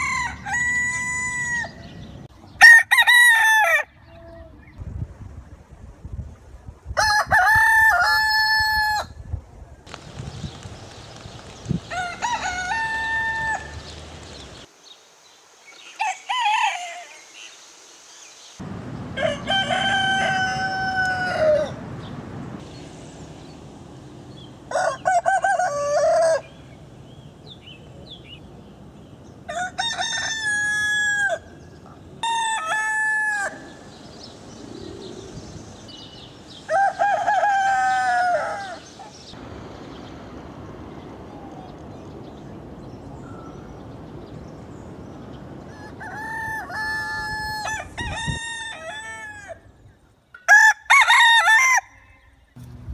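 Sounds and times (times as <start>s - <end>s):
roosters crowing: 0.0s - 2.0s, 2.6s - 4.0s, 7.0s - 9.2s, 11.8s - 14.4s, 19.1s - 22.0s, 24.6s - 26.8s, 29.4s - 31.6s, 32.2s - 34.0s, 35.8s - 39.3s, 45.6s - 49.7s, 50.4s - 52.3s
faint outdoor background: 0.0s - 52.9s.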